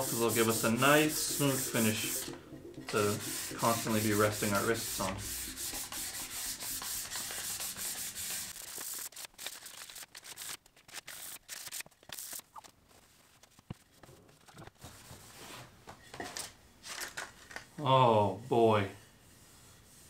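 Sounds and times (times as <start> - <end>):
sandpaper rasping on wood: 0.0 - 2.3, 2.9 - 9.8
sandpaper rustling: 0.0 - 2.3, 3.0 - 14.4.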